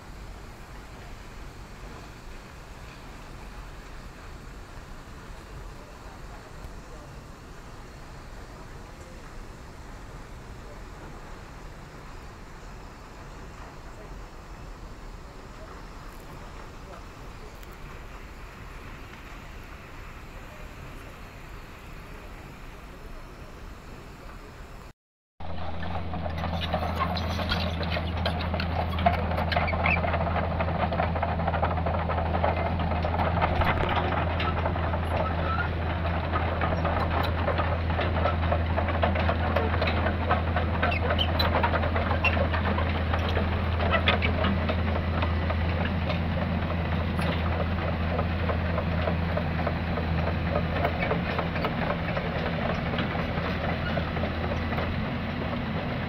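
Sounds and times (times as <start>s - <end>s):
excavator diesel engine running: 25.4s - 56.0s
rattle of clicks and clanks: 25.4s - 56.0s.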